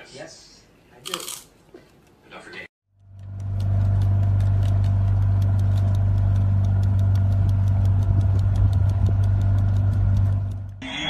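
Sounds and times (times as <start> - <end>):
motorboat engine running: 3.0 - 10.8.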